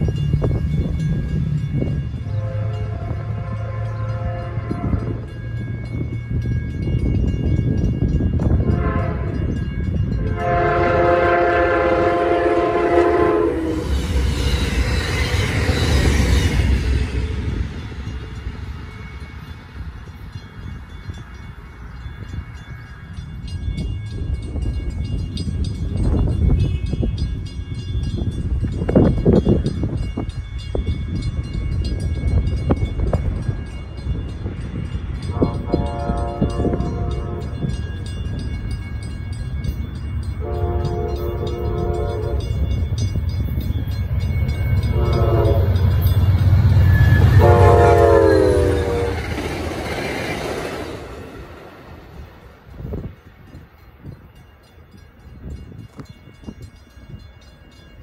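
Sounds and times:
train rumble: 0.0s - 58.0s
train horn blasts: 2.2s - 5.3s, 8.5s - 14.0s, 35.2s - 37.8s, 40.4s - 42.7s, 44.8s - 49.4s.

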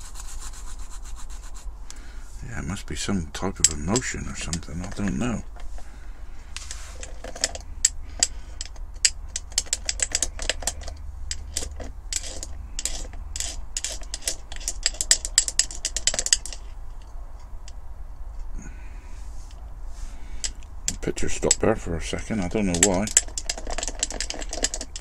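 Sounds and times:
metal rattling against glass jar: 3.4s - 5.6s, 6.6s - 17.8s, 20.4s - 25.0s.

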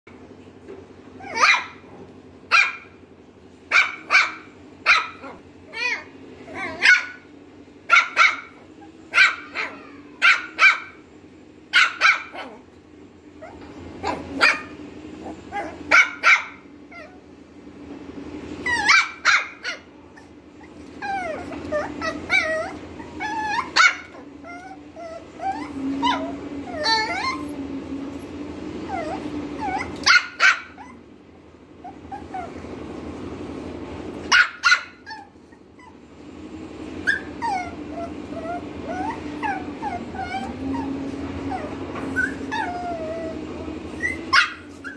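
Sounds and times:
puppy barking and yipping: 1.2s - 3.0s, 3.7s - 7.3s, 7.9s - 11.0s, 11.7s - 12.7s, 13.4s - 17.2s, 18.6s - 28.3s, 28.9s - 31.0s, 34.2s - 36.0s, 37.0s - 44.9s.

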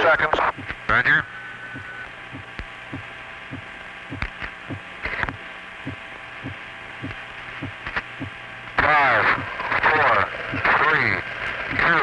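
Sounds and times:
electrical hum: 0.0s - 12.0s
heartbeat: 0.5s - 0.8s, 1.7s - 8.4s.

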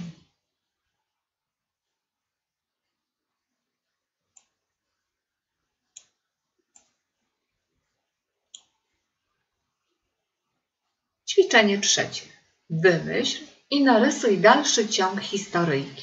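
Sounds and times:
computer mouse clicks: 4.3s - 4.6s, 5.9s - 7.0s, 8.5s - 8.8s.

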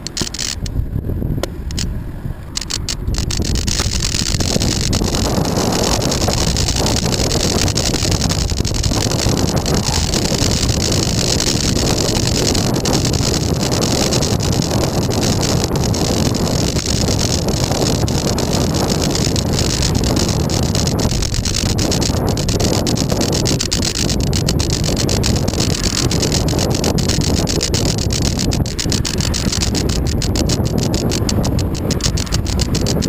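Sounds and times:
wind rushing over microphone: 0.0s - 33.0s.

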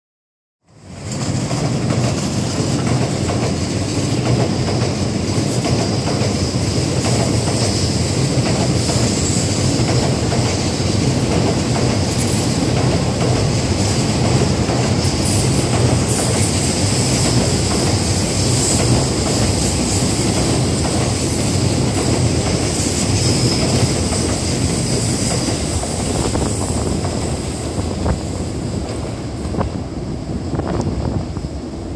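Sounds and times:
train wheels rumbling on rails: 0.6s - 31.9s
high-pitched train whine: 0.7s - 31.9s.

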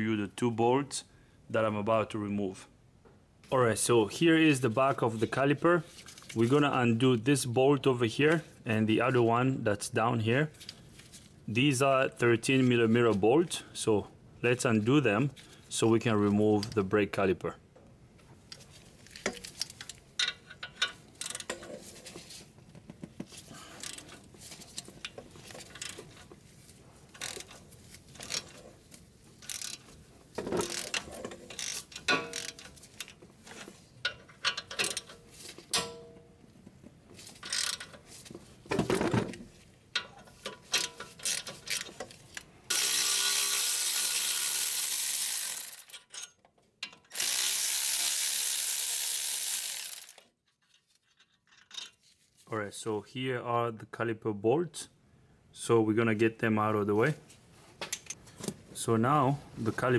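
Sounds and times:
ratchet clicks: 27.2s - 27.5s, 29.4s - 29.8s, 30.6s - 32.6s, 37.4s - 37.9s, 42.7s - 46.0s, 47.1s - 50.2s
cordless ratchet whirring: 29.5s - 29.8s, 42.7s - 45.9s, 47.1s - 50.2s.

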